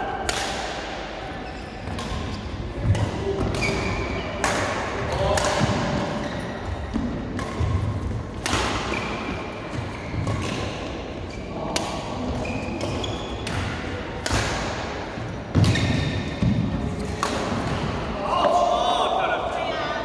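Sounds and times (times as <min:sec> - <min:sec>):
racket hitting shuttlecock: 0:00.2 - 0:01.0, 0:01.8 - 0:11.0, 0:11.7 - 0:18.0
court shoes squeaking: 0:01.3 - 0:04.8, 0:05.6 - 0:14.4, 0:15.2 - 0:17.8.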